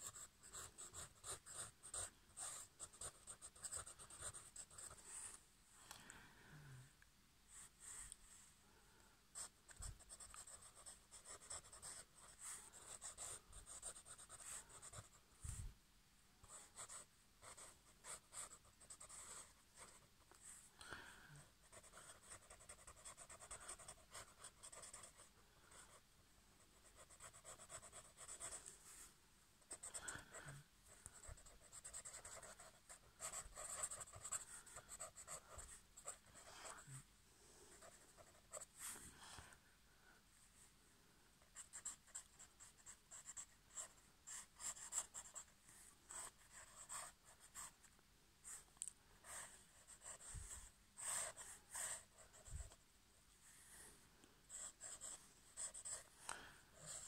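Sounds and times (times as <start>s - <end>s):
pen scratching on paper: 0.0s - 5.1s, 9.4s - 15.1s, 16.4s - 20.1s, 21.7s - 26.0s, 26.7s - 28.6s, 31.0s - 36.8s, 41.6s - 45.5s, 46.1s - 47.7s, 49.2s - 52.8s, 54.5s - 56.1s, 56.8s - 57.0s.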